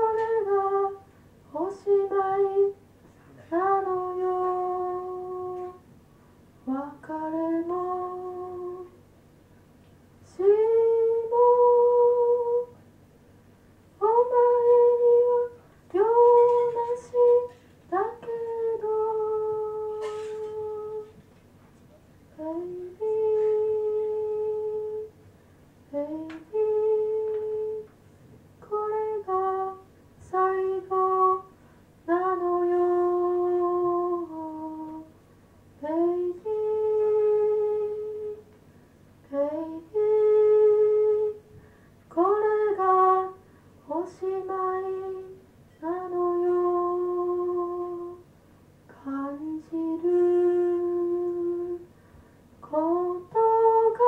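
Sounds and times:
person humming a slow melody: 0:01.6 - 0:05.8, 0:06.7 - 0:09.0, 0:10.3 - 0:12.8, 0:14.0 - 0:21.2, 0:22.4 - 0:25.1, 0:25.9 - 0:27.9, 0:32.1 - 0:35.1, 0:35.8 - 0:38.5, 0:39.3 - 0:41.5, 0:42.2 - 0:48.2, 0:48.9 - 0:51.9.

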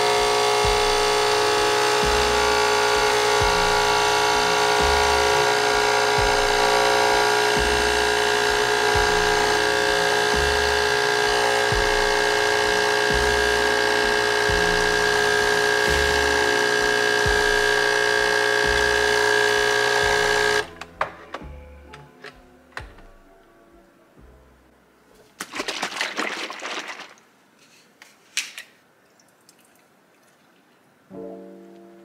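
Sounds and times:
coffee machine pump buzzing: 0:00.0 - 0:20.8.

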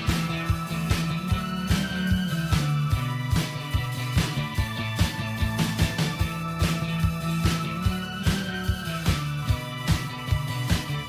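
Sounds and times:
music with drum beat and bass: 0:00.0 - 0:11.0.

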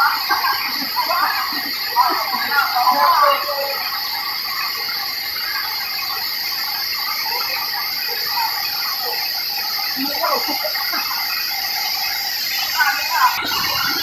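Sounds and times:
faint voices: 0:00.0 - 0:11.1, 0:12.3 - 0:14.0
insects droning: 0:00.0 - 0:14.0
waterfall rushing: 0:00.0 - 0:14.0.

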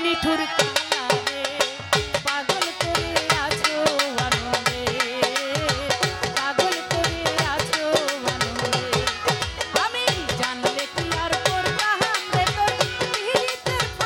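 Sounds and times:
tabla rhythm: 0:00.0 - 0:14.0.

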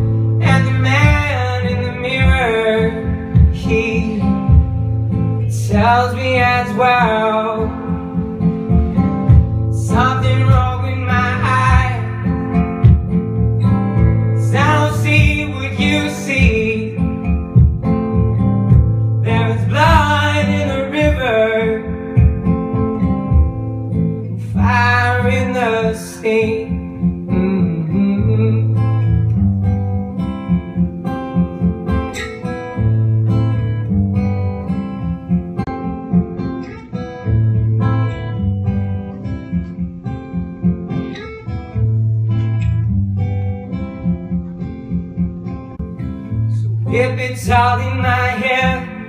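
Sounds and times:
acoustic guitar playing: 0:00.0 - 0:49.0
person singing: 0:00.4 - 0:04.8, 0:05.4 - 0:13.1, 0:13.7 - 0:17.3, 0:19.2 - 0:22.5, 0:24.3 - 0:29.1, 0:46.4 - 0:49.0.

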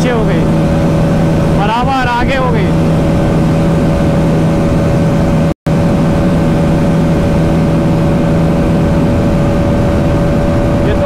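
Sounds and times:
motorcycle engine at high revs: 0:00.0 - 0:11.0.

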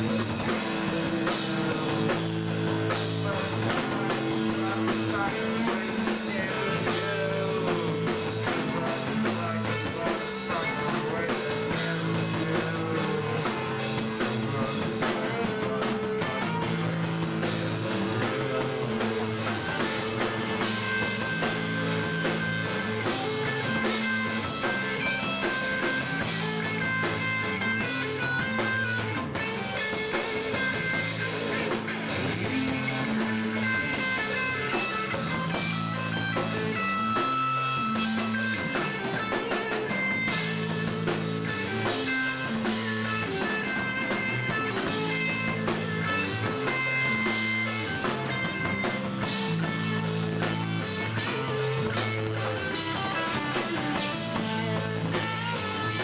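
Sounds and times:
drum kit: 0:00.0 - 0:56.0
electric guitar: 0:00.0 - 0:56.0.

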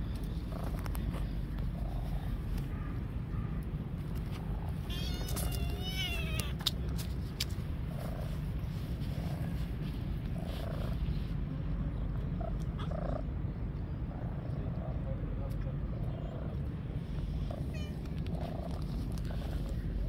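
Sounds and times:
kitten meowing: 0:04.9 - 0:06.6
kitten purring: 0:07.9 - 0:11.4, 0:16.0 - 0:20.0.

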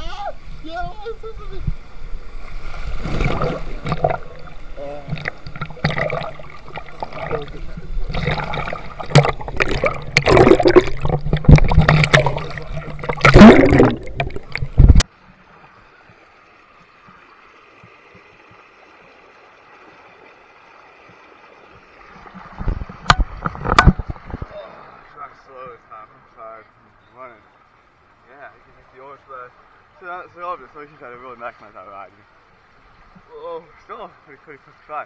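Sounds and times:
pool water sloshing and gurgling: 0:00.4 - 0:26.4
loud water splashes: 0:02.3 - 0:15.0.

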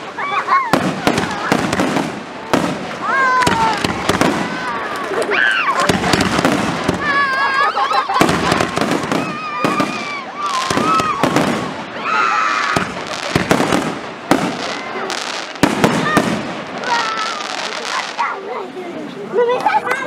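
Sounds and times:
fireworks bursting and crackling: 0:00.0 - 0:20.0
people calling out: 0:02.9 - 0:13.6, 0:14.4 - 0:18.8.

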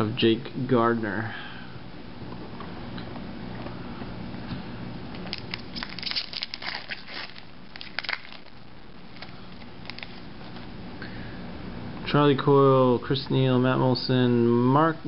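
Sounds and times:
foil wrapper tearing and crinkling: 0:05.2 - 0:10.6.

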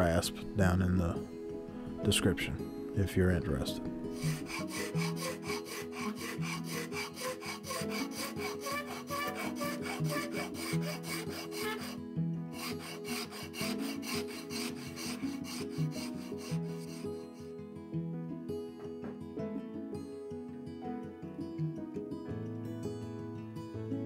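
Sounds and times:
rasp filing wood: 0:04.1 - 0:17.5.

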